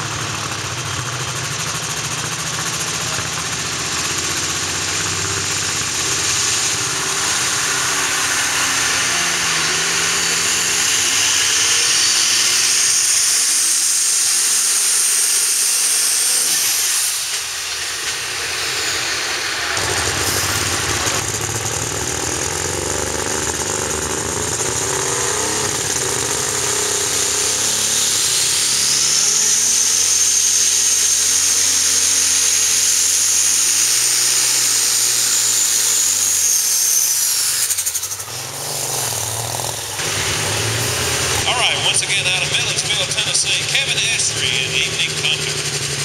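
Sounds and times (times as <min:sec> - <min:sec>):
diesel engine running: 0:00.0 - 0:46.0
high turbo whine: 0:00.0 - 0:46.0
loud hissing rush: 0:04.8 - 0:21.2, 0:26.4 - 0:46.0.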